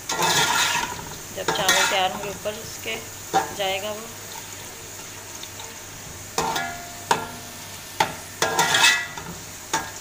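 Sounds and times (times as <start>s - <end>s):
metal spoon stirring: 0.0s - 2.4s, 8.0s - 9.8s
onions sizzling in hot oil: 0.0s - 10.0s.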